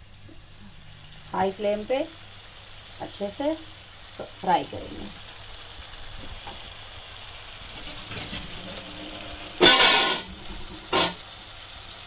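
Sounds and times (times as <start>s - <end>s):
chicken sizzling in oil: 0.0s - 12.0s
vehicle horn honk: 9.6s - 10.2s.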